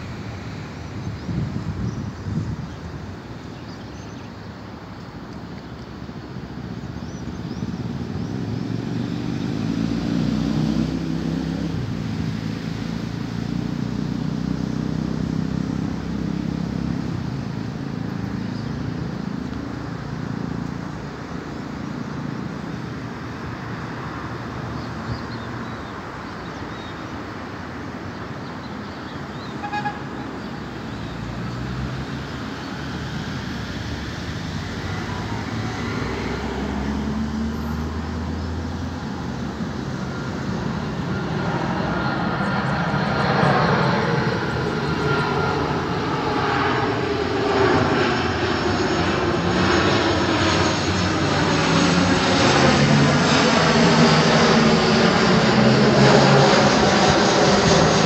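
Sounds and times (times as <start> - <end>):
airliner jet engines rumbling: 0.0 - 58.0.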